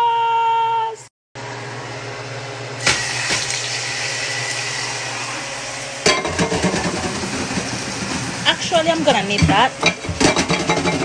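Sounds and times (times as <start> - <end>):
chicken sizzling in oil: 2.8 - 9.3
kitchen items clattering: 6.0 - 11.0.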